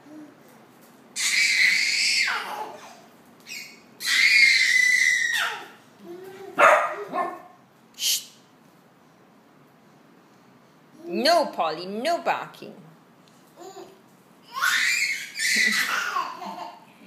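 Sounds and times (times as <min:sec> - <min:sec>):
small dog barking: 0:06.6 - 0:07.6.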